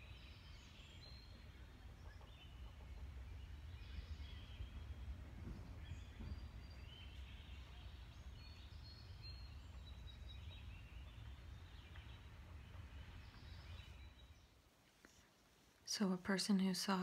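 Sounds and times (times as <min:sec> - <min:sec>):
birds chirping: 0:00.0 - 0:17.0
low rumble: 0:01.0 - 0:14.4.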